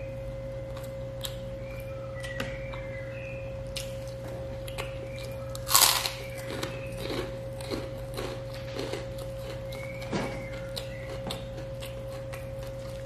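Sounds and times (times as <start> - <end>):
background hum: 0.0 - 13.0
person chewing: 3.7 - 13.0.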